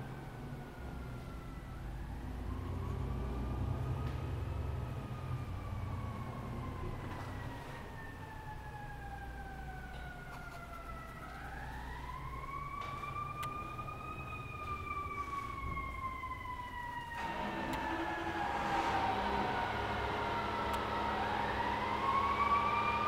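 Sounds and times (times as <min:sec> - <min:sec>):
emergency siren wailing: 0:00.0 - 0:23.0
loud noise: 0:17.2 - 0:23.0.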